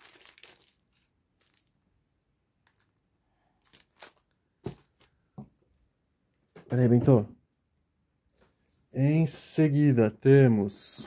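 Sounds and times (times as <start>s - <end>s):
paper rustling: 0.0s - 1.8s.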